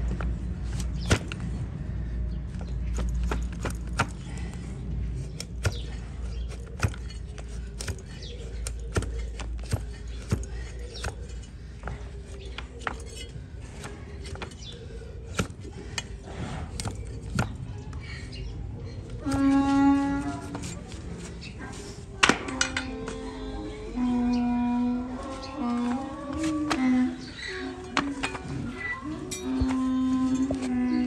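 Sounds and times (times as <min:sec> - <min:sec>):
cleaver chopping on wooden block: 0:15.3 - 0:15.6.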